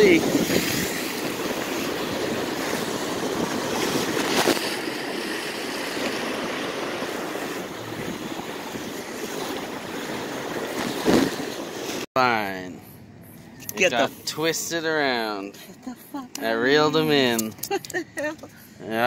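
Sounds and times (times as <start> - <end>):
wind buffeting microphone: 0.0 - 12.0
surf on beach: 0.0 - 12.4
wind: 0.0 - 19.0.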